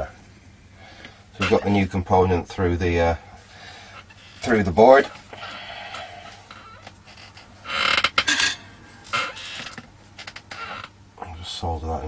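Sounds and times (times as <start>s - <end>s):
tools clattering and rustling: 8.1s - 9.8s.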